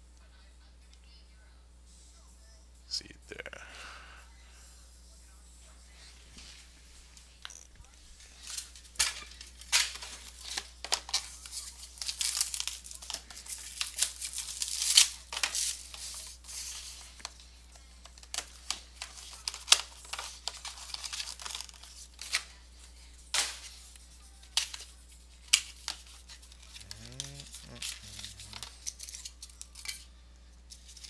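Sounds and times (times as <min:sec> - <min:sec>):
plastic wrap tearing and crinkling: 0:08.3 - 0:17.4, 0:18.0 - 0:22.5, 0:24.4 - 0:30.0.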